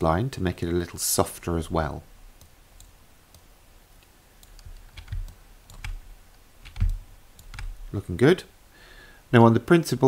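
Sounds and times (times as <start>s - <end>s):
soft computer clicks: 2.4s - 7.8s.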